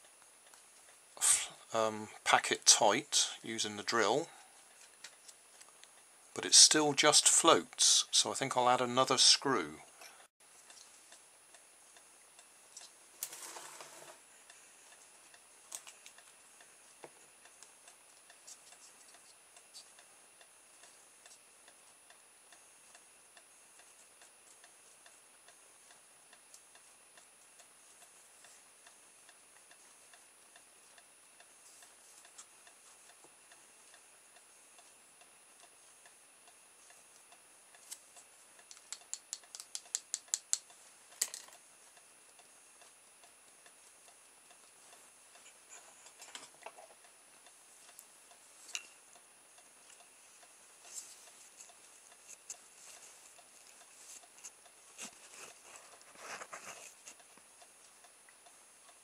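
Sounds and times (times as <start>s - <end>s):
sharp tapping: 38.6s - 40.7s.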